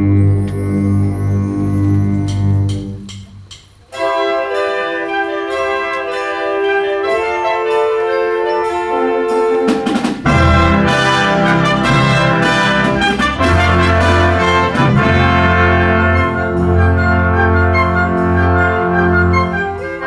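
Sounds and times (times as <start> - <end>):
wind band playing: 0.0 - 3.2, 3.8 - 20.0
low brass: 3.9 - 20.0.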